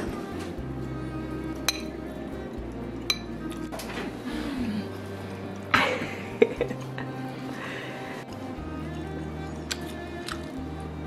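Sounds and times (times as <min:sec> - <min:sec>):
background music with bass line: 0:00.0 - 0:11.0
utensil clinking ceramic bowl: 0:01.7 - 0:01.9.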